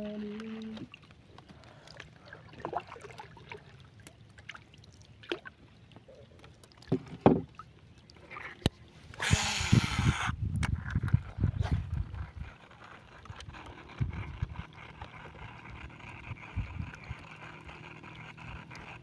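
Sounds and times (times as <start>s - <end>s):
fishing line hissing off reel: 9.1s - 10.4s.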